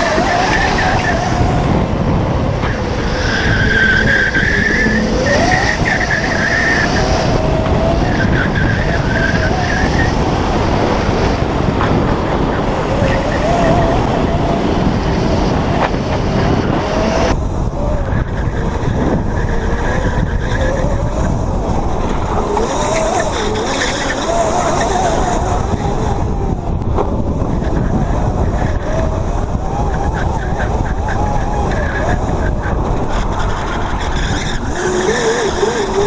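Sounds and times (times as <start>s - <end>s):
electric motor whining: 0.0s - 36.0s
wind and road noise rumble: 0.0s - 36.0s.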